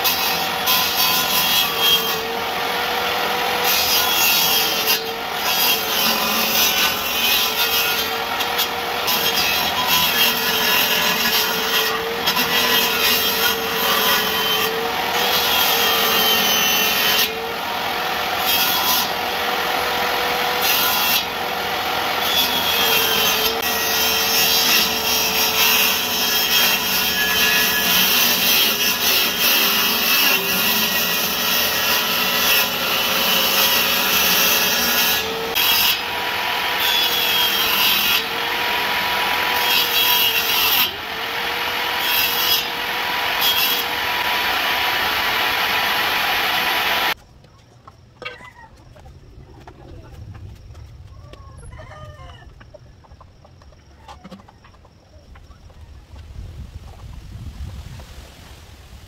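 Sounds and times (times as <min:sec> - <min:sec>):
circular saw cutting bamboo: 0:00.0 - 0:47.2.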